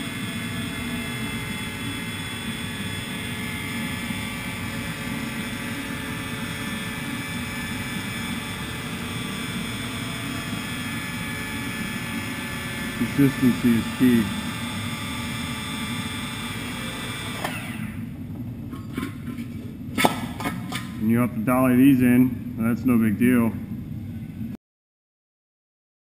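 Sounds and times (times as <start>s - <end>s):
electric bead roller motor drone: 0.0s - 18.2s.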